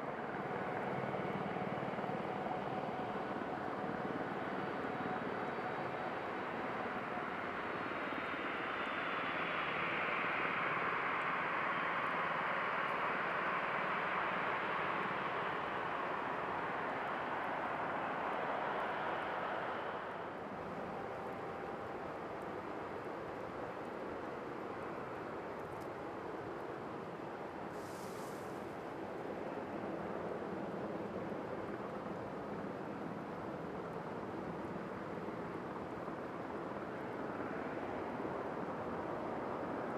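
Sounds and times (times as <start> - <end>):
jet engines running: 0.0 - 39.9
faint brief hiss: 27.7 - 28.7.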